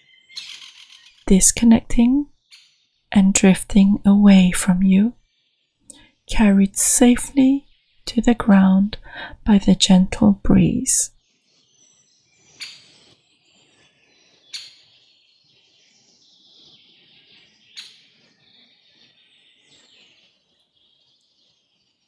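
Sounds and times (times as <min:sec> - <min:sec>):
birds chirping softly: 0:11.1 - 0:22.0.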